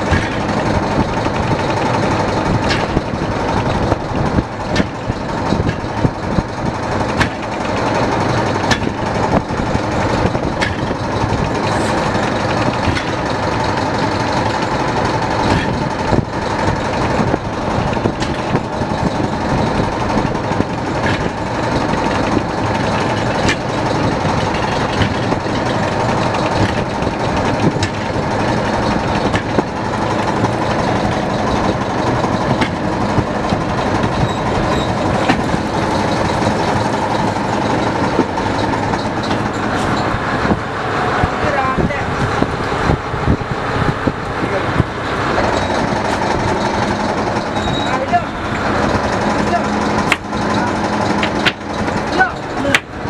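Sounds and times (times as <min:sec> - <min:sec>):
knocks and clatter of net hauling: 0:00.0 - 0:40.6
boat engine humming: 0:00.0 - 0:53.0.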